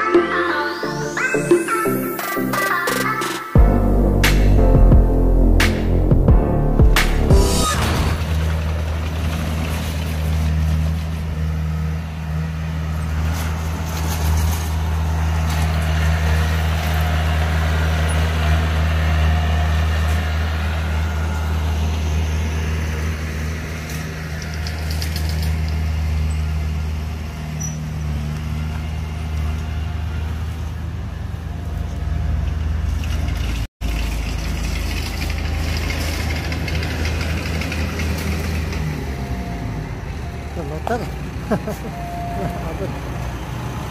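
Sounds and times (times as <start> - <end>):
bulldozer diesel engine running: 33.8 - 43.9.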